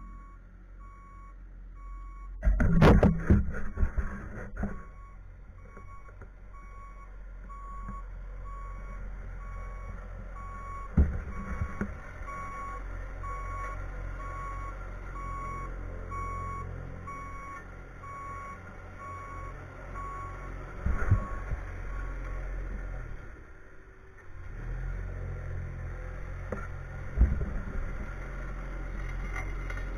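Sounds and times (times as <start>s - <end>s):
backup alarm beeping: 0.0s - 2.4s, 4.8s - 20.5s
engine running: 2.4s - 29.9s.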